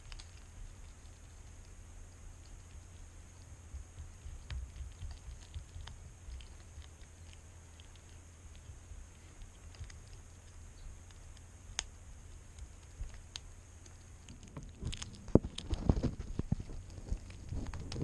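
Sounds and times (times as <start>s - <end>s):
ferret crunching bone: 0.0s - 18.0s.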